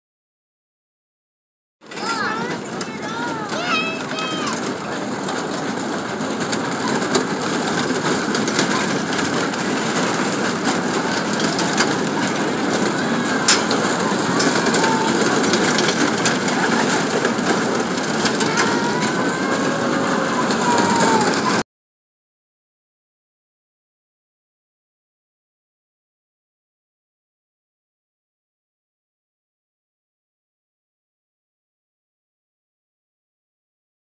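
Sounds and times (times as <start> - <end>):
ride cars rumbling on track: 1.8 - 21.6
faint high voices: 1.9 - 5.1, 11.1 - 21.6.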